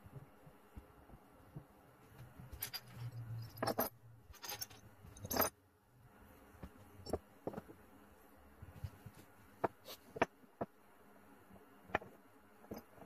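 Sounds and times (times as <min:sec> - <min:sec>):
metal bits clinking on wood: 0:02.5 - 0:05.6.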